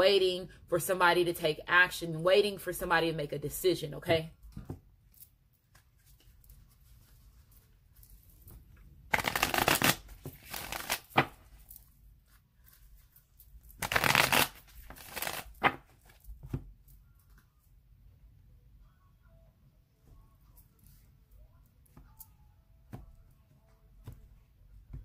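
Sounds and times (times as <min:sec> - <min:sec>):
cards being shuffled: 0:05.6 - 0:17.5.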